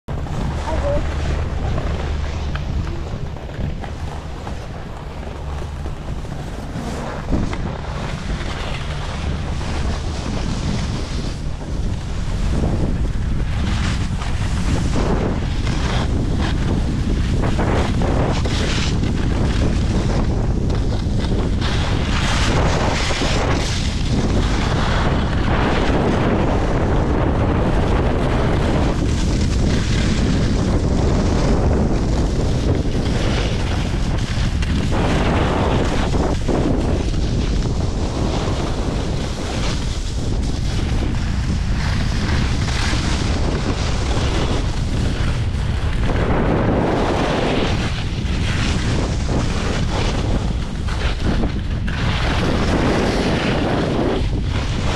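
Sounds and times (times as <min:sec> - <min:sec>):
wind buffeting microphone: 0:00.0 - 0:54.9.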